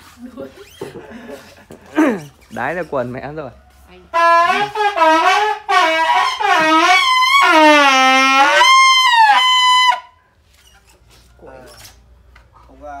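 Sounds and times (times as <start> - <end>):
plastic toy trumpet blaring: 4.1 - 10.2.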